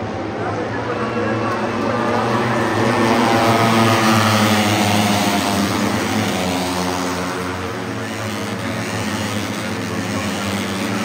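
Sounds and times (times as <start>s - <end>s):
racing motorcycles passing at high revs: 1.2s - 11.0s.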